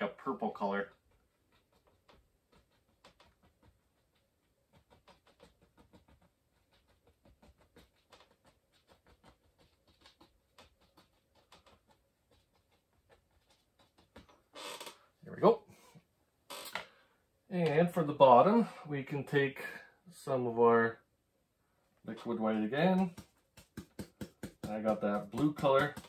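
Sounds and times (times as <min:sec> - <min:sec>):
paint brush tapping on canvas: 0:22.2 - 0:26.0.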